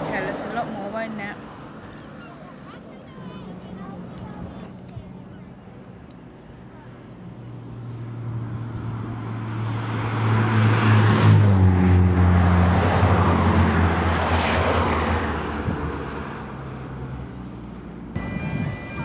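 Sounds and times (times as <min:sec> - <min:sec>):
vehicles passing by: 0:00.0 - 0:19.0.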